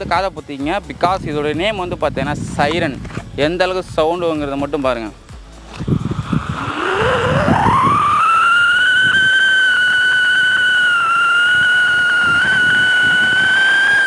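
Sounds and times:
firework shrill siren whistle: 6.3 - 14.0.

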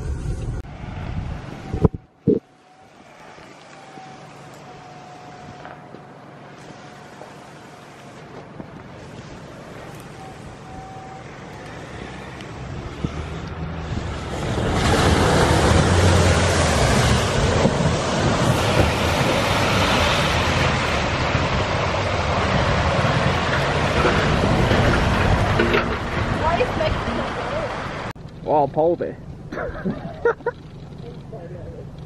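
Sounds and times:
tyres splashing through muddy water: 14.0 - 28.1.

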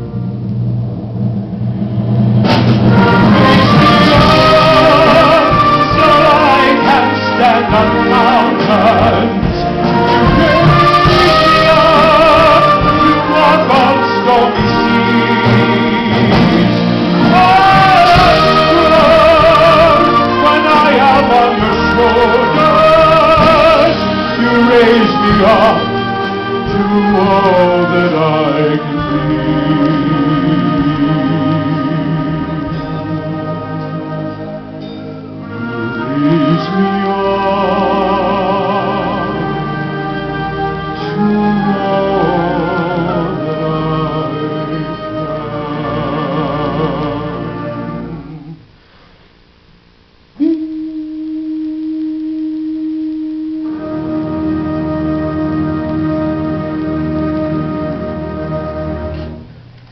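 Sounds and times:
symphonic band playing slow ballad: 0.0 - 49.0, 50.2 - 59.8
long held note: 50.4 - 56.0.

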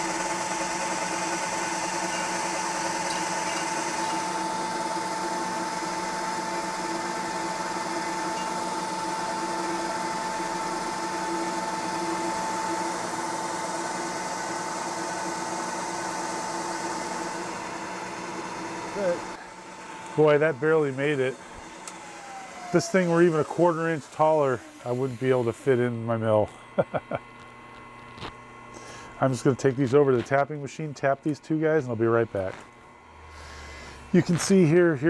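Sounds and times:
drill bit boring into metal: 0.0 - 25.9
milling machine spindle whine: 0.0 - 35.0.

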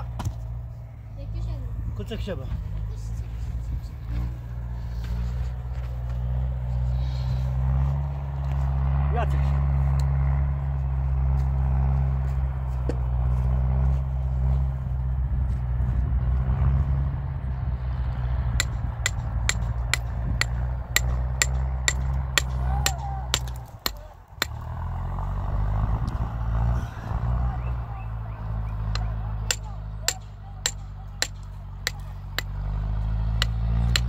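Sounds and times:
low mechanical drone: 0.0 - 34.0
sharp regular clicks: 28.8 - 34.0.

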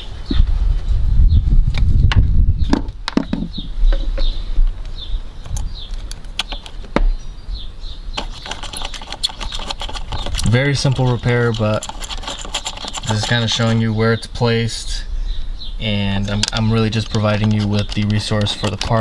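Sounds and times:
small bird chirping: 2.5 - 19.0
sharp clicks: 4.8 - 7.0, 8.2 - 13.8, 16.2 - 19.0.

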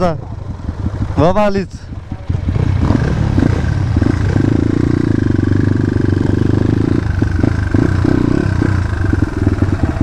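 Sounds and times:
dirt bike engine revving: 2.3 - 10.0.

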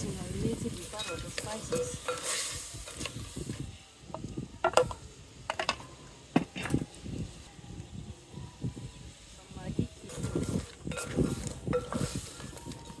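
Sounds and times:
shells scraping against metal pot: 0.7 - 3.4, 10.1 - 13.0.

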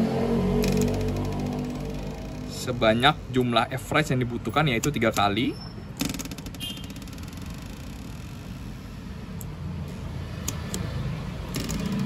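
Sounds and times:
hardness tester probe clicks: 10.4 - 10.9.

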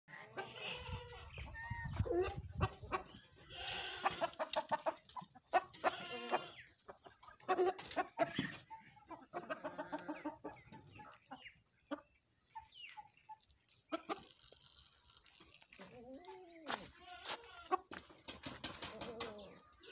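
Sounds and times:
chickens clucking: 0.1 - 14.6, 15.4 - 19.9
goats bleating: 3.4 - 4.4, 5.7 - 6.6, 16.7 - 17.9.

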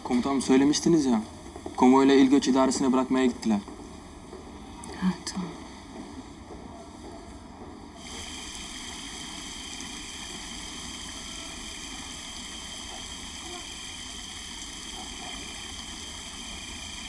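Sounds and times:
night background hiss: 8.0 - 17.0.

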